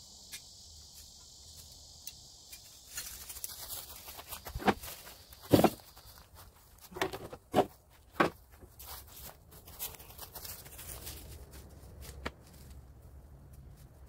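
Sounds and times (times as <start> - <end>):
footsteps crunching dry leaves: 2.7 - 12.9.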